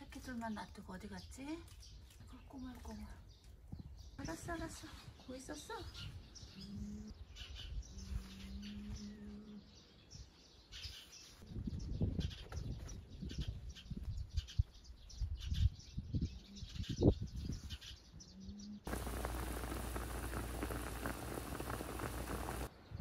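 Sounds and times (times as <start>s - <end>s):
small birds chirping: 0.0s - 23.0s
pot boiling and bubbling: 18.9s - 22.7s.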